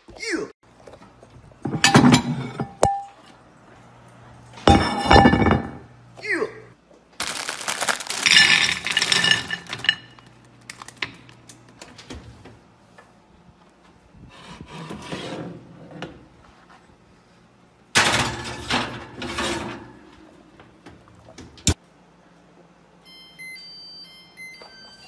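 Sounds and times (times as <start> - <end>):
candy clattering into ceramic dish: 7.2 - 10.2
dish rattling on metal oven rack: 8.2 - 10.2.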